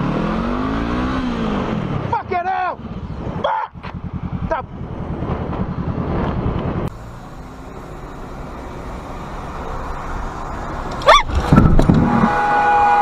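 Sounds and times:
car engine and road noise: 0.0 - 13.0
motorcycle engine rumbling: 0.0 - 13.0.

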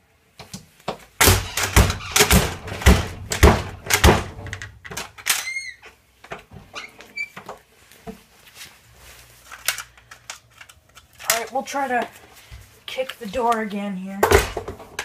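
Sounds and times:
door banging shut: 1.2 - 5.0.

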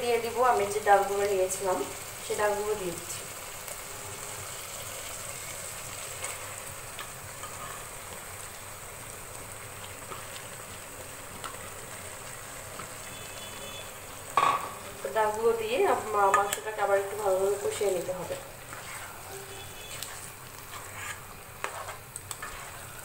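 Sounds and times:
curry sizzling in a frying pan: 0.0 - 23.0
spatula scraping pan: 6.2 - 8.0, 16.0 - 23.0.

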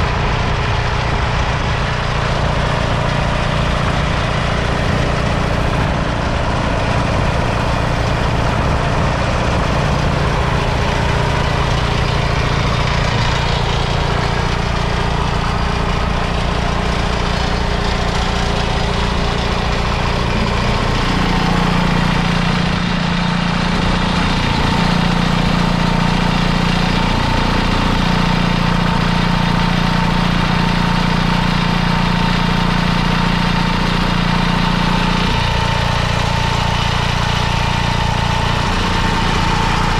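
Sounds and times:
diesel engine idling: 0.0 - 39.9.

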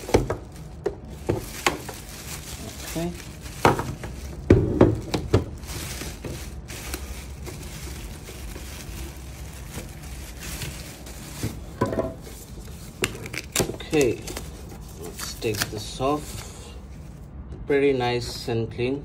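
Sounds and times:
plastic bag crinkling: 0.0 - 17.0
appliance knocking on table: 3.7 - 5.5.

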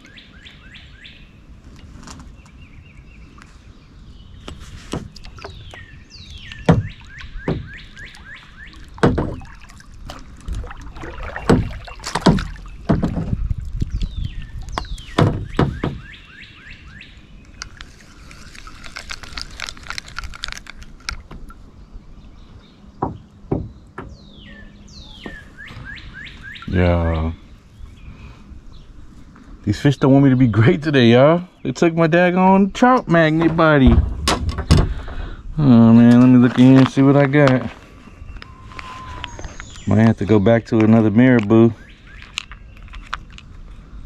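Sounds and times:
songbird singing: 0.0 - 44.0
gear knocking against kayak: 11.2 - 13.9.

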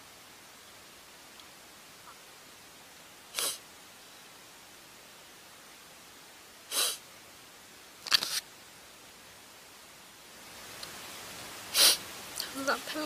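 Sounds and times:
faint steady hiss: 0.0 - 13.0
woman sniffing back tears: 3.4 - 3.6, 6.7 - 7.0, 11.7 - 12.0.

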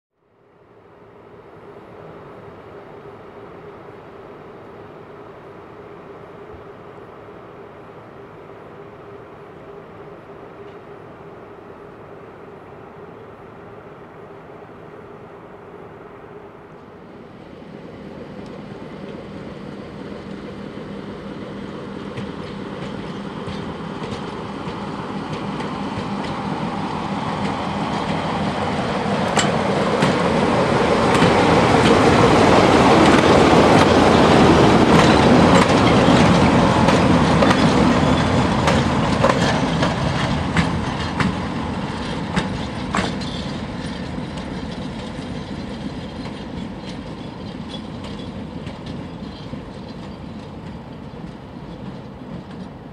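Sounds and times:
diesel locomotives passing: 0.2 - 52.9
wheels clicking over rail joints: 22.1 - 52.9.

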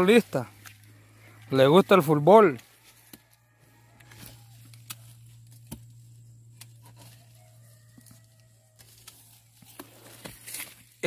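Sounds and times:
dry stalks rustling: 0.0 - 11.0
low steady hum: 3.7 - 8.4
stalks snapping with sharp clicks: 4.6 - 5.9.

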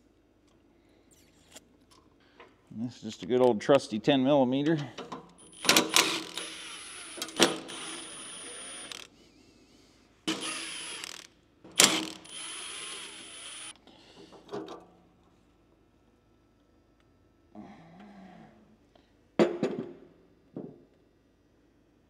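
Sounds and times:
power driver motor whine: 5.4 - 9.1, 10.3 - 13.8.

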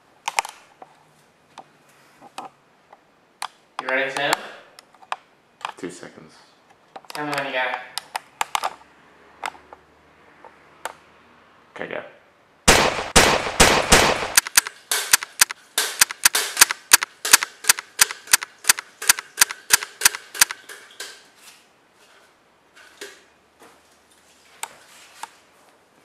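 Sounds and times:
pistol gunshots rapid fire: 12.7 - 17.4.

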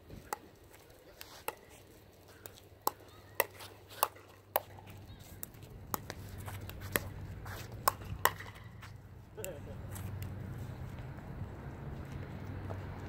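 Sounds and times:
paddles hitting plastic ball: 0.1 - 10.4
ball bouncing on court: 2.8 - 9.0.

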